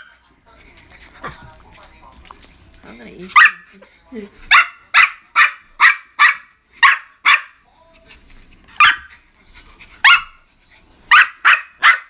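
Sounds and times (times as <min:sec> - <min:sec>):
small dog barking: 0:03.3 - 0:03.7, 0:04.5 - 0:07.6, 0:08.8 - 0:09.1, 0:10.0 - 0:10.4, 0:11.1 - 0:12.0.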